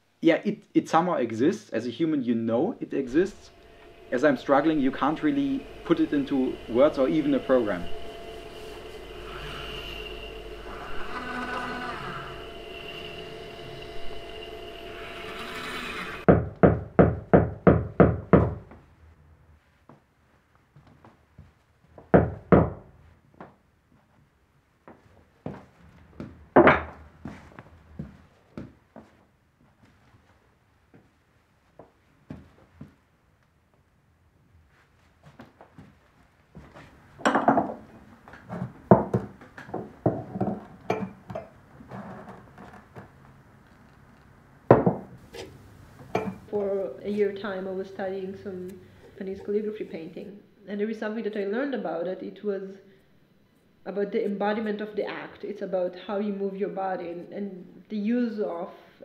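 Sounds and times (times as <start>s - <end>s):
machine hum: 2.2s - 19.1s
glass jars clinking and knocking: 37.2s - 37.8s, 40.1s - 41.5s, 46.1s - 46.5s.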